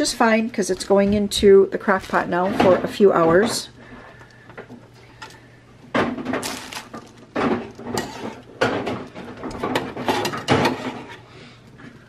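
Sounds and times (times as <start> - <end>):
metal tongs scraping on griddle: 7.8 - 8.5, 9.5 - 11.2.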